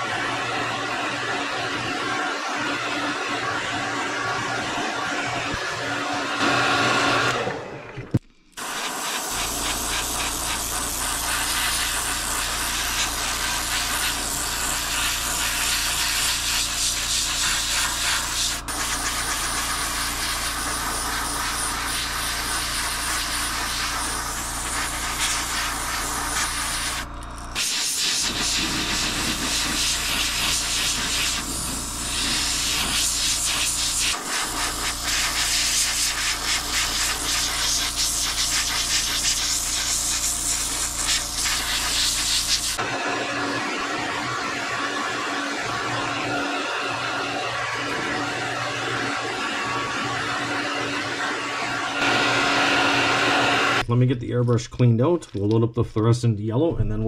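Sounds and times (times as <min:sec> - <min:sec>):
airbrush spraying hiss: 0:08.6 - 0:42.8.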